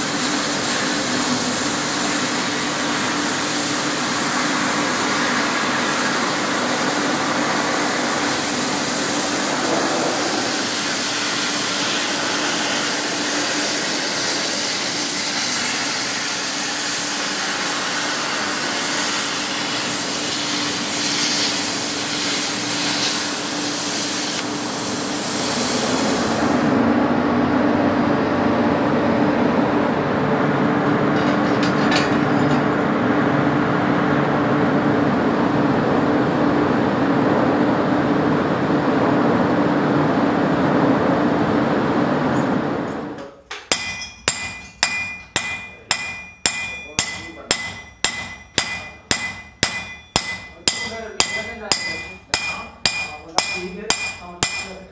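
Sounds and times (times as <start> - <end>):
cutting torch hissing: 0.0 - 26.8
hammer striking steel blade: 43.5 - 54.9.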